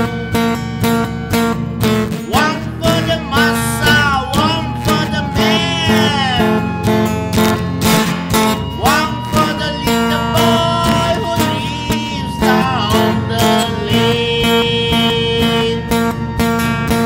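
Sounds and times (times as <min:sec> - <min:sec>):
acoustic guitar strumming: 0:00.0 - 0:17.0
man singing: 0:02.2 - 0:07.0, 0:07.9 - 0:16.2.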